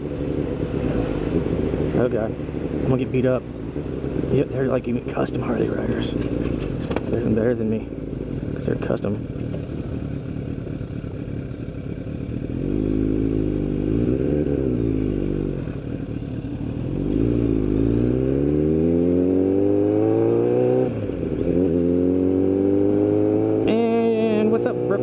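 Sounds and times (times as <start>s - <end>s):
motorcycle engine accelerating: 0.0s - 25.0s.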